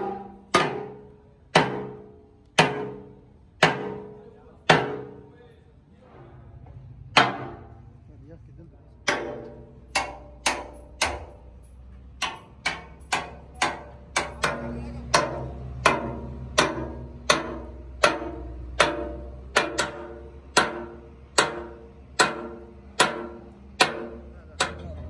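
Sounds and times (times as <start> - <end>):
hammer striking steel chisel: 0.0 - 1.0, 1.6 - 5.2, 9.0 - 11.6, 12.2 - 25.0.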